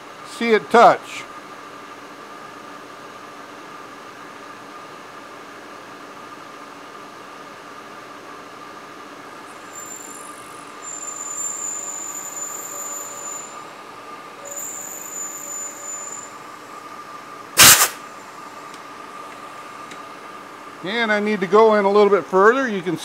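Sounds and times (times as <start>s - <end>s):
milling machine spindle whine: 9.4s - 17.4s
high-pitched cutting squeal: 9.6s - 13.7s, 14.4s - 16.4s
short loud burst of noise: 17.6s - 18.1s.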